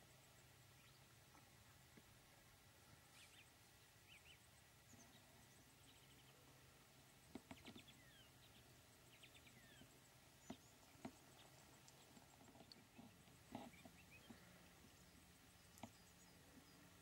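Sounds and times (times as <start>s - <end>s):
faint bird chirps: 0.0s - 17.0s
soft clicks: 10.4s - 14.4s.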